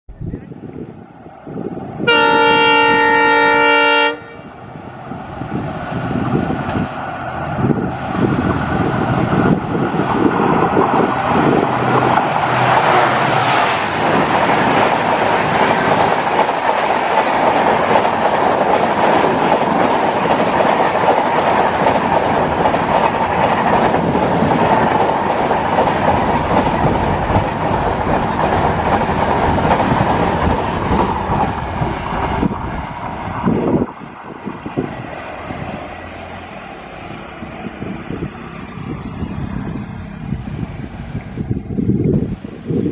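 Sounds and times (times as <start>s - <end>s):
train wheels rumbling on rails: 0.1s - 42.9s
train horn: 2.0s - 4.6s.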